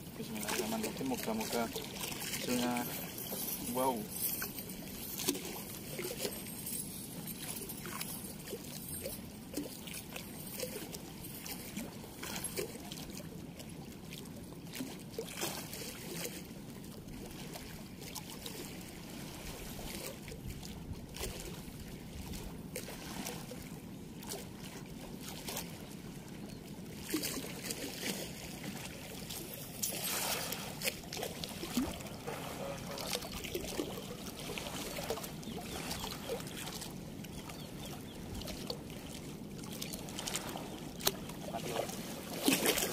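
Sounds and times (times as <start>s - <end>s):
river water running: 0.0s - 42.9s.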